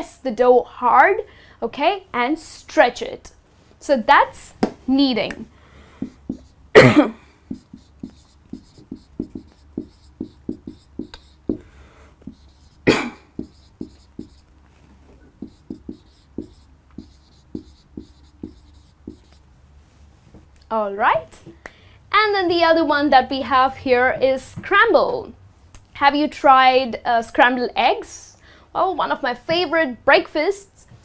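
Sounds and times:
marker writing on whiteboard: 4.6 - 6.6, 7.4 - 19.4
marker tip tapping: 6.0 - 6.5, 7.5 - 12.8, 13.4 - 14.4, 15.4 - 19.4.

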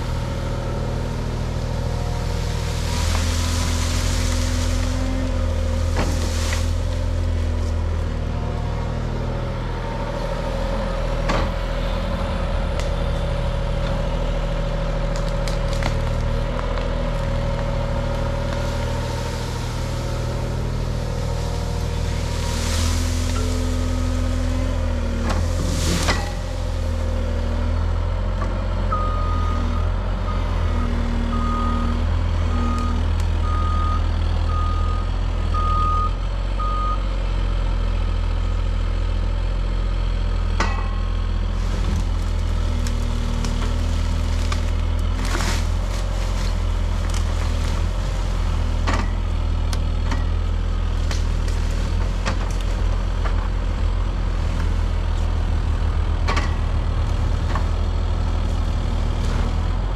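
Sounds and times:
diesel engines running: 0.0 - 59.9
branches crashing into truck bed: 1.0 - 8.1, 15.1 - 27.4, 41.5 - 49.4, 50.2 - 55.5.

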